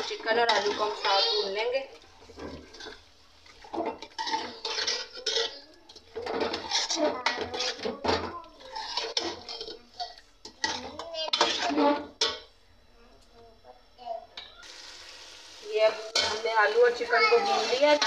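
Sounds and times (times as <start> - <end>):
metal spoon scraping a pot: 0.0 - 12.4, 16.1 - 18.0
food frying: 0.0 - 12.5, 14.4 - 18.0.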